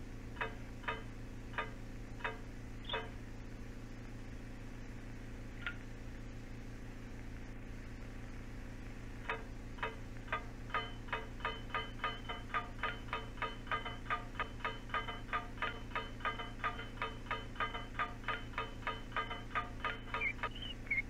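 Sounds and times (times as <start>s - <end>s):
steady low hum: 0.0s - 21.0s
sharp ticks: 0.3s - 3.2s, 8.8s - 21.0s.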